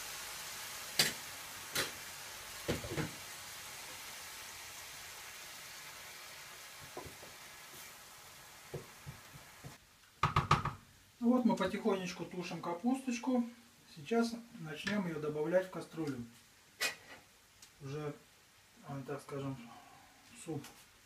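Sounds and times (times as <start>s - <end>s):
food sizzling in frying pan: 0.0s - 13.3s.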